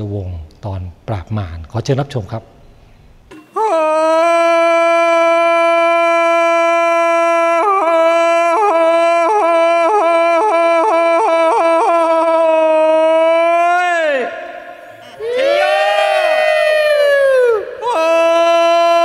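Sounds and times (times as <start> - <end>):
reedy wind instrument long note: 14.6 - 18.1.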